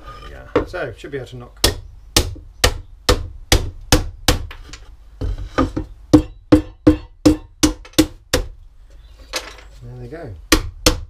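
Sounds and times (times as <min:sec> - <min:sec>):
hammer knocking on wood: 0:05.2 - 0:08.6.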